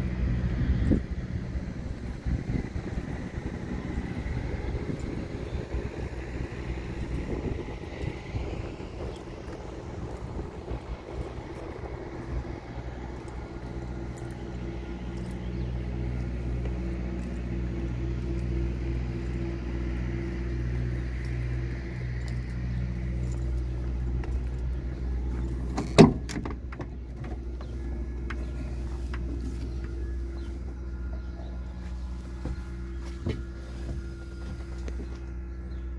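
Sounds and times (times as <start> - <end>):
diesel truck engine idling: 0.0 - 35.9
cab door metallic clack: 25.7 - 27.4.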